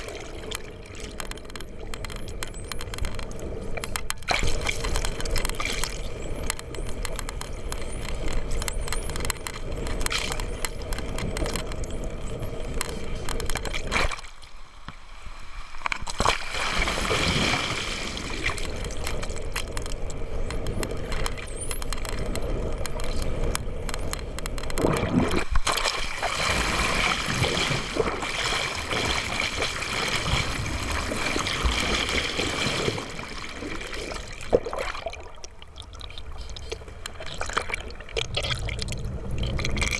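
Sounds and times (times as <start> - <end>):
water rushing underwater: 0.0 - 1.9, 15.1 - 23.5, 24.8 - 39.9.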